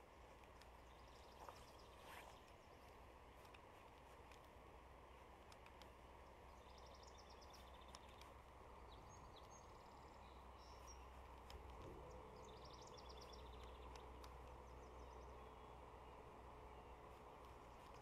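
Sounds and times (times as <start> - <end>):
low steady hiss: 0.0 - 18.0.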